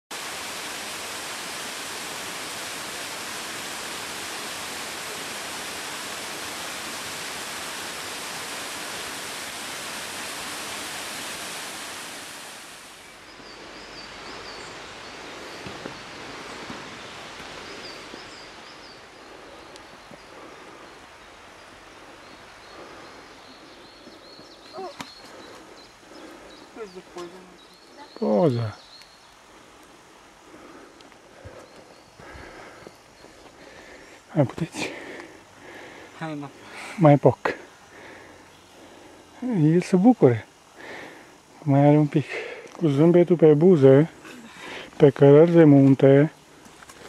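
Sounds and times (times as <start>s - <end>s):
waterfall rushing: 0.0s - 23.8s.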